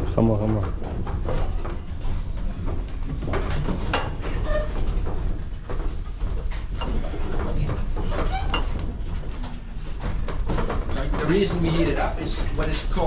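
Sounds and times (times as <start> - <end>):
gearing clattering knocks: 0.0 - 13.0
wooden machinery rumble: 0.0 - 13.0.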